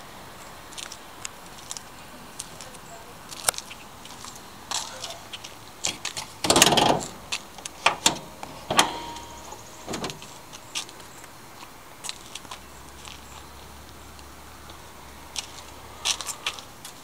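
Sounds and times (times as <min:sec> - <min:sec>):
sharp metal clicks and clunks: 0:05.9 - 0:11.1
brief metallic ring: 0:08.6 - 0:09.8.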